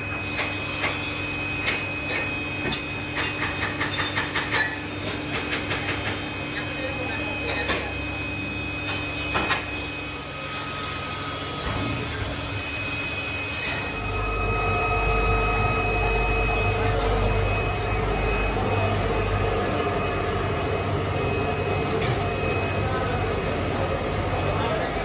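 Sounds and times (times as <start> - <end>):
foundry machinery roaring: 0.0 - 25.0
thin whine: 4.6 - 24.8.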